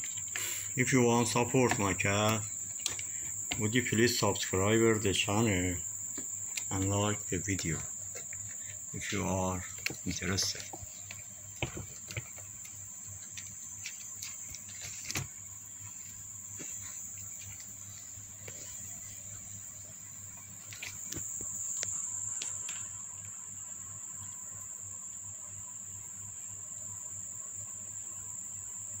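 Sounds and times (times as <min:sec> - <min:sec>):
insect trilling: 0:00.0 - 0:29.0
kittens scrabbling in plastic box: 0:09.6 - 0:15.4.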